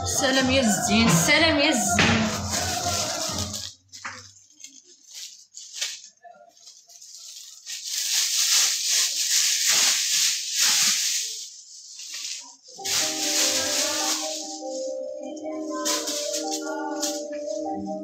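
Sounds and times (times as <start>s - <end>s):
music: 0.0s - 3.8s, 12.8s - 18.0s
plastic bin bag rustling: 0.1s - 18.0s.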